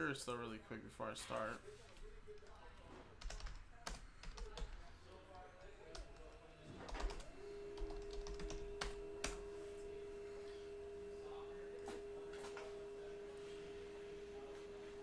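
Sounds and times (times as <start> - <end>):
computer keyboard typing: 2.3 - 4.9, 5.6 - 9.5.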